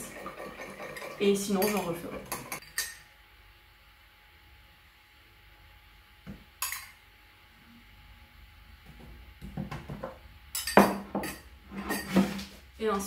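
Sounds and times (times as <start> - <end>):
metal spoon clinking on bowl: 10.5 - 12.0.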